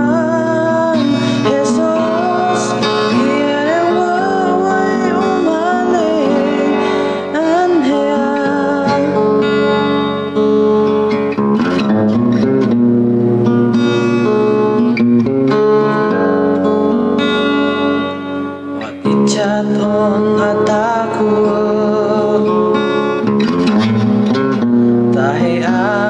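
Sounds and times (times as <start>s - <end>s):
man singing: 0.0s - 9.8s, 18.8s - 23.2s, 25.1s - 26.0s
acoustic guitar strumming: 0.0s - 26.0s.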